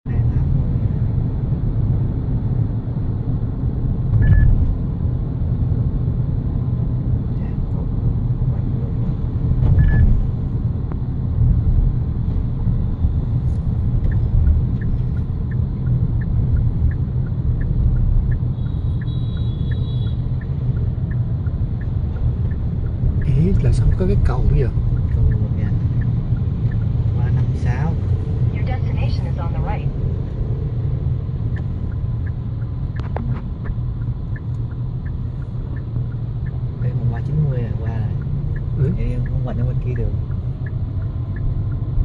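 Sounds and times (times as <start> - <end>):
car engine and tyre rumble: 0.0 - 42.0
light regular ticking: 10.9 - 42.0.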